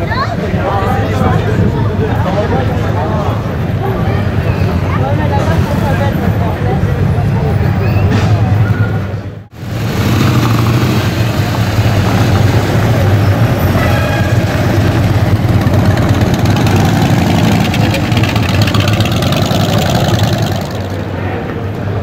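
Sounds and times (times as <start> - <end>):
motorcycle engines running at low revs: 9.6 - 13.7, 14.6 - 21.7.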